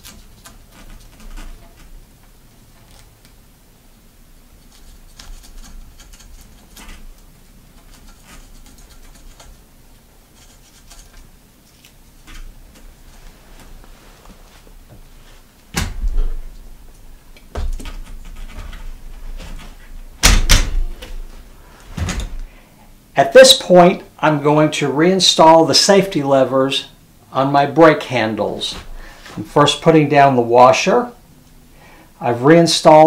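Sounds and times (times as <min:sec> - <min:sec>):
handlebar tape rustling: 0:00.0 - 0:03.4, 0:04.6 - 0:22.5
loud knocks and thumps: 0:15.7 - 0:16.5, 0:17.5 - 0:21.2.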